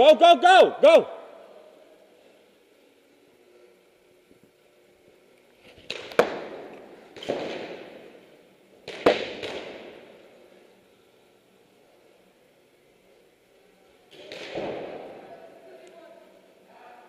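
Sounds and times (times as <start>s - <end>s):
paintball marker shots echoing: 5.7s - 10.4s, 14.1s - 15.3s.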